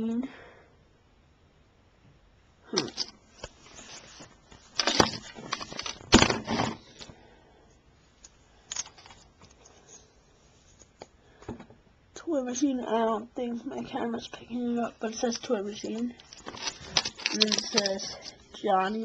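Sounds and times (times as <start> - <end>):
camera handling rustling and clicks: 2.9 - 7.1, 15.9 - 18.4.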